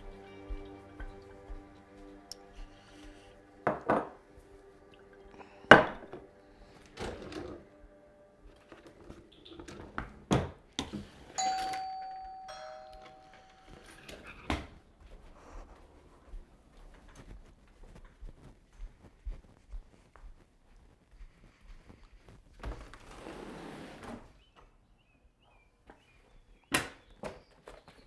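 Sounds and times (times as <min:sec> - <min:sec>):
ding-dong doorbell chime: 0:11.4 - 0:14.4.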